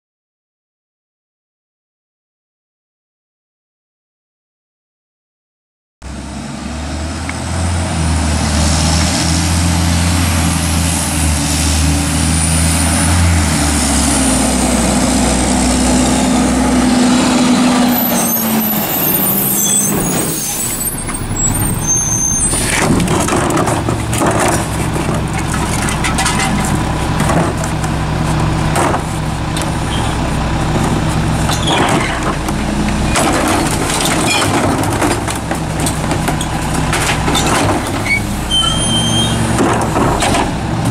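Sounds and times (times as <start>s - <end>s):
garbage truck diesel engine: 6.0s - 40.9s
brake squeal: 10.6s - 40.9s
trash carts clattering against hopper: 17.2s - 40.9s.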